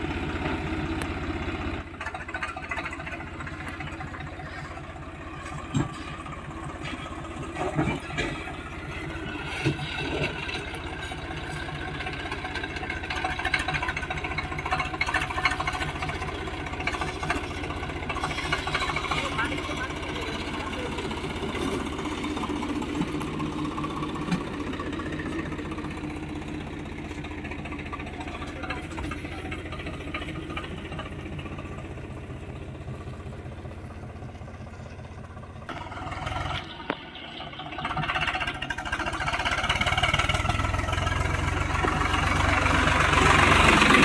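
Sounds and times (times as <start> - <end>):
tractor diesel engine running: 0.0 - 44.0.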